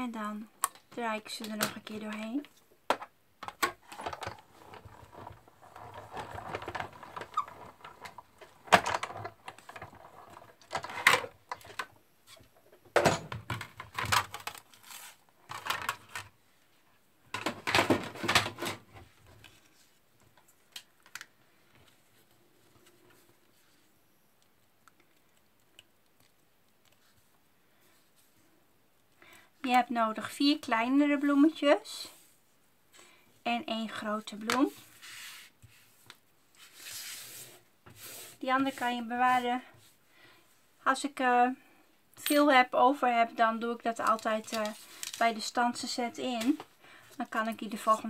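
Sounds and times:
plastic and metal plates clacking: 0:02.9 - 0:12.0, 0:12.8 - 0:14.7, 0:17.3 - 0:19.0.

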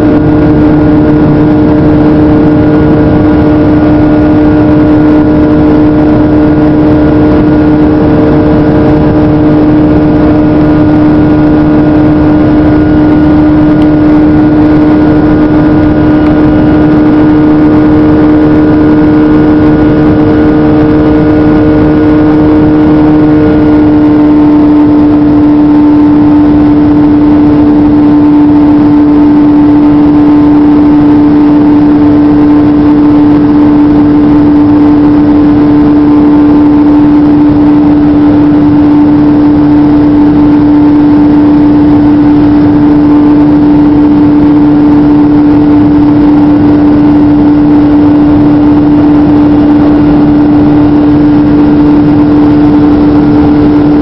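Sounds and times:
jet engine drone in cabin: 0:00.0 - 0:54.0.

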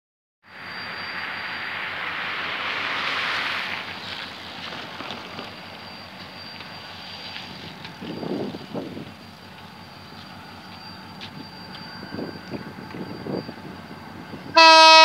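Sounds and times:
distant diesel locomotive: 0:00.4 - 0:15.0
wind buffeting microphone: 0:07.5 - 0:09.2, 0:11.3 - 0:14.6.

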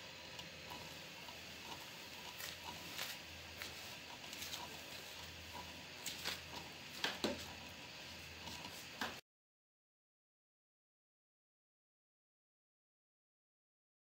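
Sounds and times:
router hum: 0:00.0 - 0:09.2
bit crackling through board: 0:00.2 - 0:09.2.

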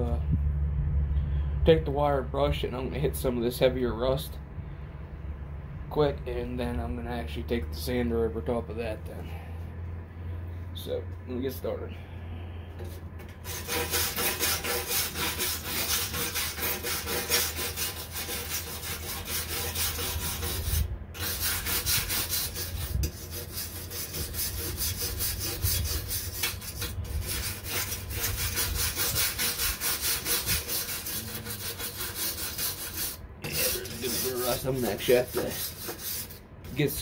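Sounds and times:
wire brush scrubbing metal: 0:12.8 - 0:37.0.

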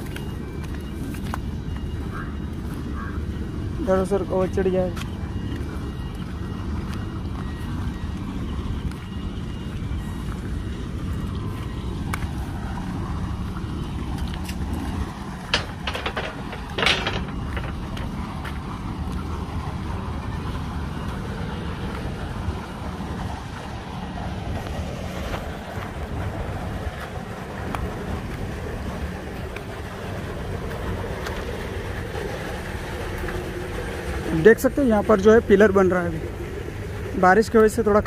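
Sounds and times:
distant construction machinery: 0:00.0 - 0:38.0
sharp knocks: 0:15.5 - 0:18.0.

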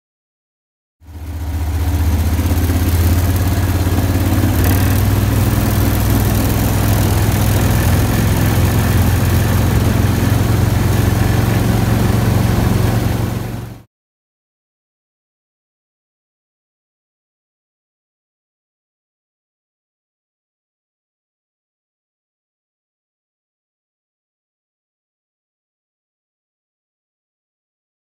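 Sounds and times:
boat motor droning: 0:01.1 - 0:13.9
rush of wind and water: 0:04.7 - 0:13.7.

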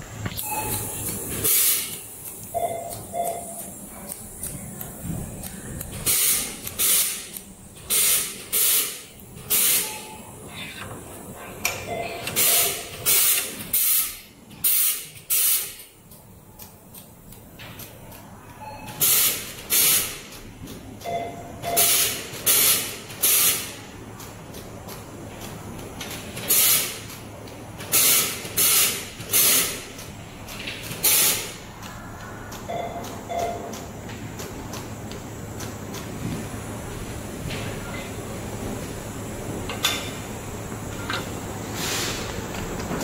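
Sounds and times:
laser welding hisses: 0:00.2 - 0:02.6, 0:03.4 - 0:10.4, 0:12.3 - 0:15.9, 0:19.0 - 0:20.3, 0:21.8 - 0:23.9, 0:26.4 - 0:27.0, 0:27.9 - 0:30.0, 0:31.0 - 0:32.6
machine hum: 0:23.1 - 0:43.0.

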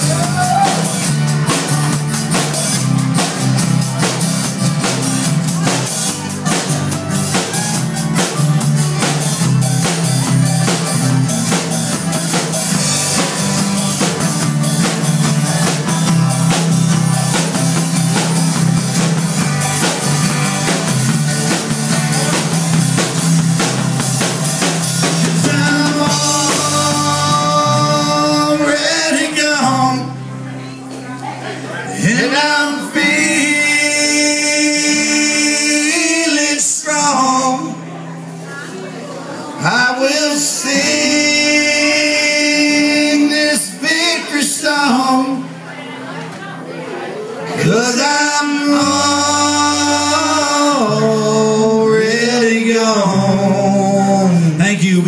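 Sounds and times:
drum kit steady beat: 0:00.0 - 0:28.8
electric bass: 0:00.0 - 0:46.7, 0:47.5 - 0:55.0
strummed acoustic guitars: 0:00.0 - 0:55.0.

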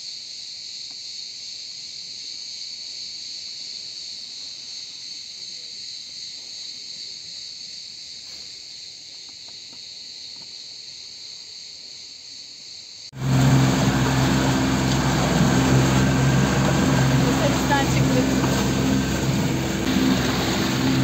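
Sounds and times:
insects chirping: 0:00.0 - 0:13.1
outboard motor running: 0:13.2 - 0:21.0
water and wind rushing: 0:13.2 - 0:21.0.

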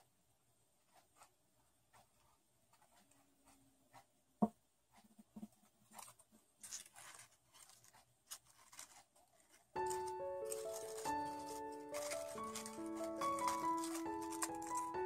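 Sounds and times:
glue stick rubbing on paper: 0:00.9 - 0:04.1, 0:04.9 - 0:15.0
paper rustling and crinkling: 0:05.4 - 0:15.0.

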